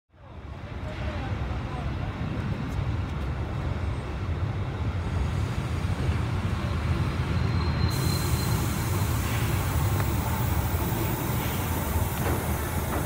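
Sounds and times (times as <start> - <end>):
steam locomotive rumble: 2.1 - 13.0
steam hiss: 7.8 - 13.0.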